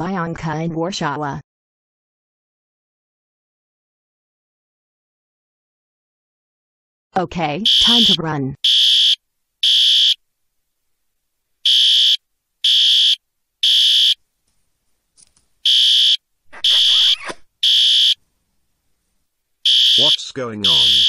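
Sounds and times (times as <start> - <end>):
fire alarm horn blasts: 7.6 - 10.2, 11.7 - 14.2, 15.7 - 16.2, 17.6 - 18.2, 19.7 - 21.0.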